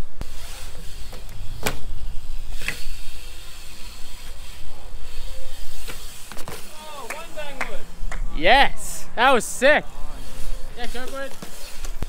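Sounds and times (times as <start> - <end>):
bike rolling on concrete: 0.0 - 12.0.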